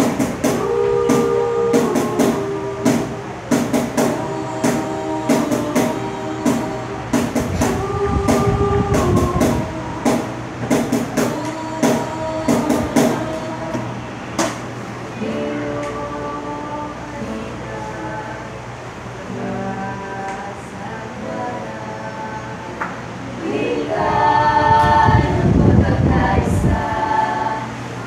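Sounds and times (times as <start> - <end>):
cajon beat: 0.0 - 14.7
vocal group singing harmonies: 0.0 - 28.0.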